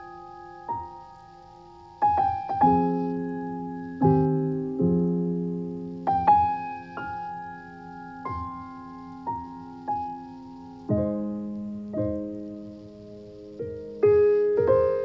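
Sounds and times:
slow solo piano music: 0.0s - 15.0s.

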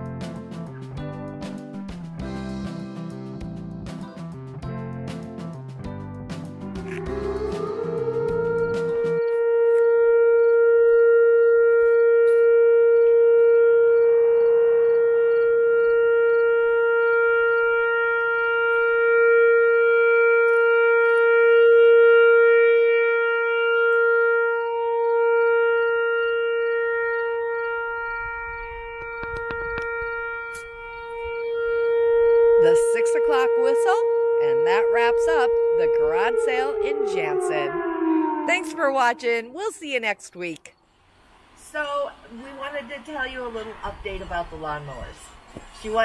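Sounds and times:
loud siren steady pitch: 6.6s - 40.7s.

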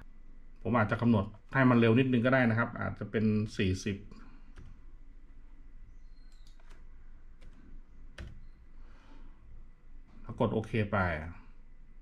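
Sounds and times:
low steady hum: 0.0s - 12.0s
computer keyboard clicks: 4.5s - 4.8s, 6.2s - 8.5s
mouse clicks: 6.0s - 8.6s.

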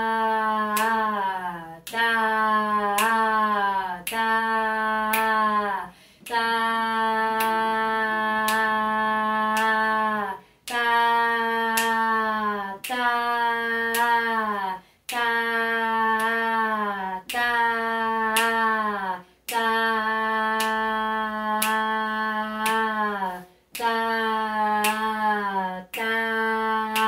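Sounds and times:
woman singing held syllable: 0.0s - 27.0s.

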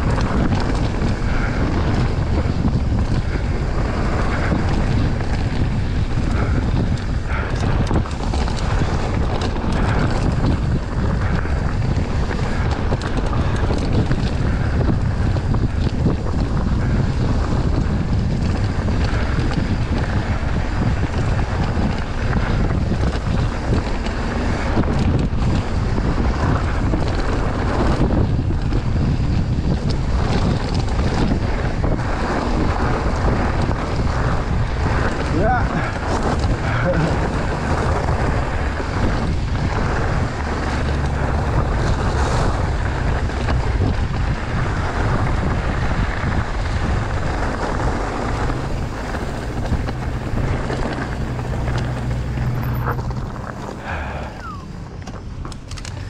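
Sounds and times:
bike rattling: 0.0s - 56.0s
tyres on loose gravel: 0.0s - 56.0s
wind buffeting microphone: 0.0s - 56.0s.

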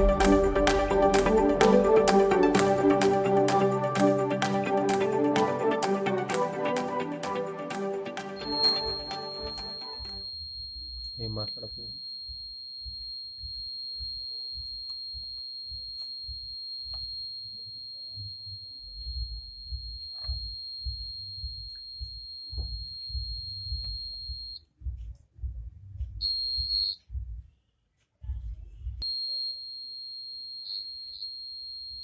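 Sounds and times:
high-pitched buzzer tone: 8.4s - 24.6s, 26.2s - 27.0s, 29.0s - 32.0s.

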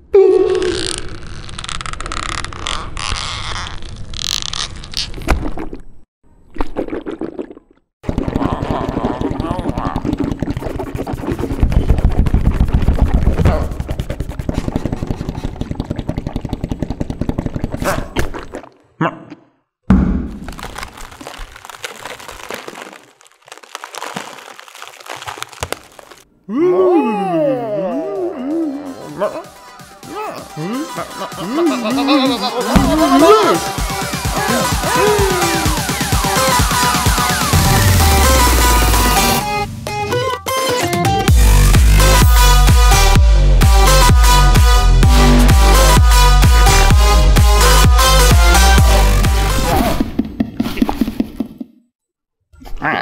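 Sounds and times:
confetti crackling: 20.4s - 26.3s
heavy thump: 32.8s - 33.2s.

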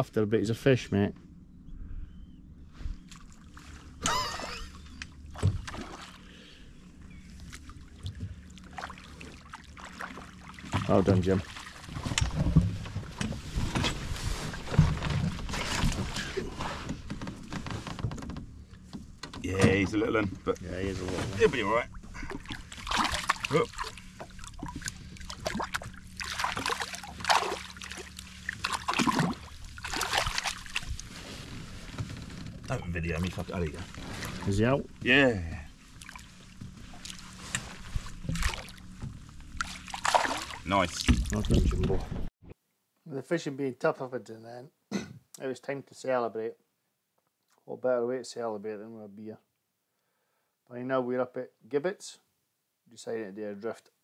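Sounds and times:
faint steady hum: 0.0s - 42.0s
low steady boat rumble: 0.0s - 42.3s
water splashing and trickling: 3.1s - 6.5s, 7.3s - 13.6s, 20.7s - 31.9s, 35.8s - 42.0s.

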